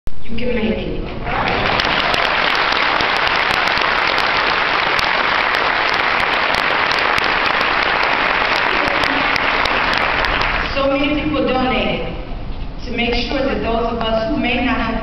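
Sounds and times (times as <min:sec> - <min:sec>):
audience applauding: 0:01.2 - 0:10.8.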